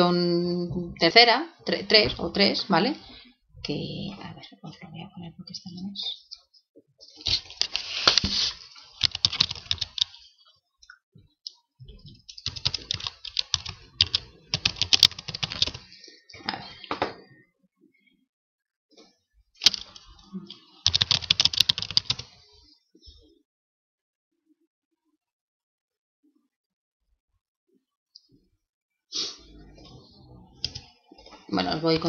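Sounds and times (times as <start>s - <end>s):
keyboard typing: 9.0s - 10.2s, 12.3s - 15.9s, 19.6s - 20.1s, 20.8s - 22.3s, 30.6s - 31.3s.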